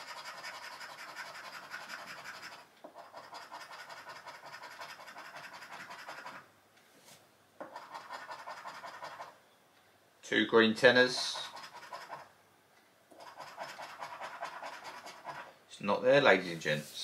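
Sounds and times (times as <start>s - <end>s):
scratching scratch card coating: 0.0s - 6.5s, 7.6s - 9.4s, 11.0s - 12.3s, 13.1s - 15.5s.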